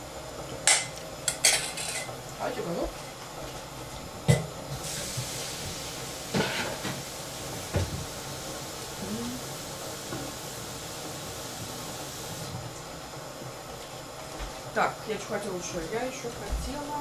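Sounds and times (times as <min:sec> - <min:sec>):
steady hiss: 0:04.7 - 0:12.6.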